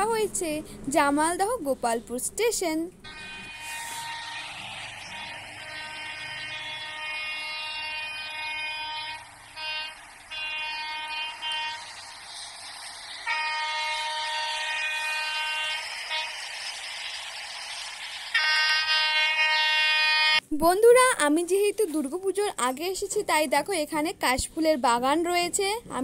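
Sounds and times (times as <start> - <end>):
train horn blasts: 3.0 - 12.0, 13.1 - 16.6, 18.3 - 20.4.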